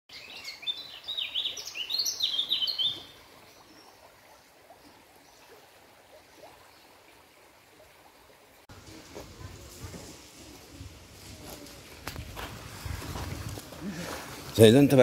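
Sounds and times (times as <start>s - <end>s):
bird chirping: 0.1s - 3.9s.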